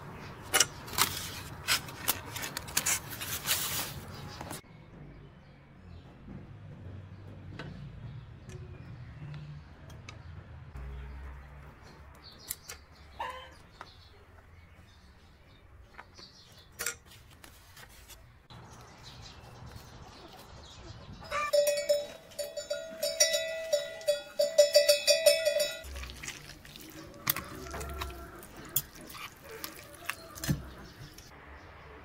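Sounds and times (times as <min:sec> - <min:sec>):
cowbells clanking: 0:21.3 - 0:26.0.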